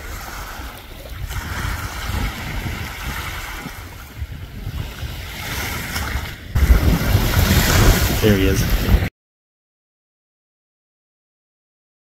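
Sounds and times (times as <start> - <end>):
small waves washing: 0.0 - 9.1
wind on microphone: 0.0 - 9.1.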